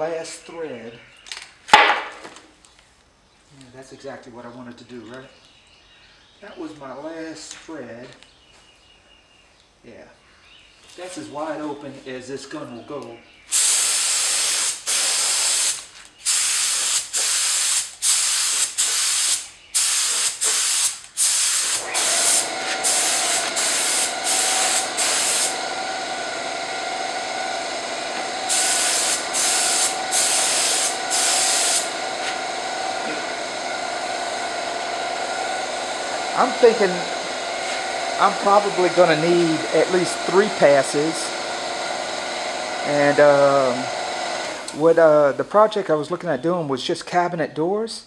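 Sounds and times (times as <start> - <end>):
spray gun air hissing: 13.5 - 45.2
air compressor humming: 13.5 - 45.8.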